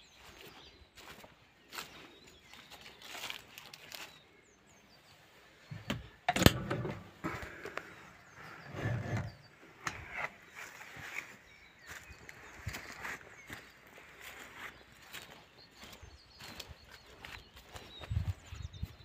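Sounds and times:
knocks and rattles in tractor cab: 0:05.7 - 0:07.3
faint bird chirps: 0:07.3 - 0:19.0.

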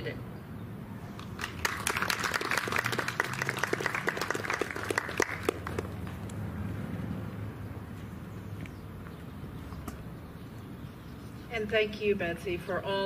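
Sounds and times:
audience applauding: 0:01.2 - 0:06.1.

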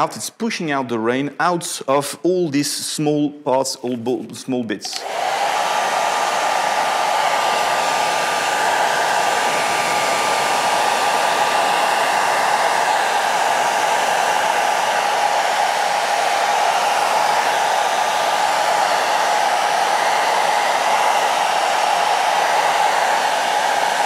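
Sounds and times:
hair dryer blowing: 0:04.9 - 0:24.0.

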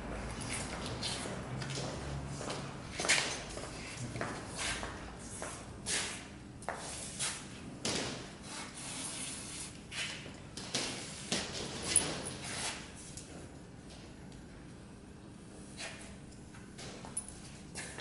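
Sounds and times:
scuffing and rubbing noises: 0:00.2 - 0:07.6.

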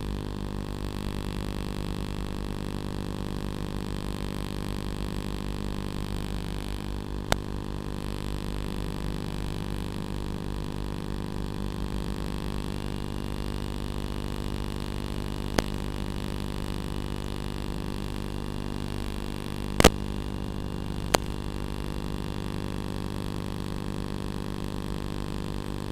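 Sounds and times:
steady hum of stacked tones: 0:00.0 - 0:25.9
sharp clicks: 0:19.8 - 0:20.1, 0:21.0 - 0:21.4.

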